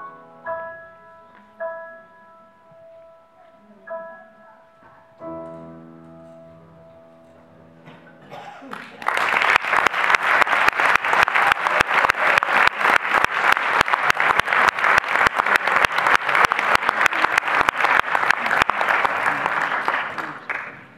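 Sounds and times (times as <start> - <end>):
audience applauding: 8.6 - 20.9
hands clapping loudly close by: 8.7 - 20.8.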